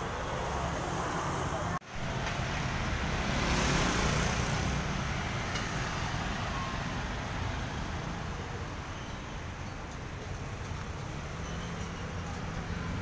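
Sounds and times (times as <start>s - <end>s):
cars and motorbikes passing: 0.0s - 13.0s.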